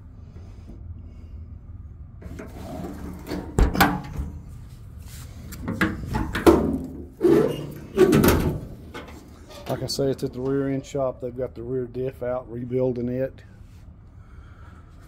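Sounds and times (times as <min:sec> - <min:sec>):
metal compartment doors rubbing: 0:02.2 - 0:04.5, 0:05.7 - 0:11.1
door latches clunking and clicking: 0:07.6 - 0:09.8.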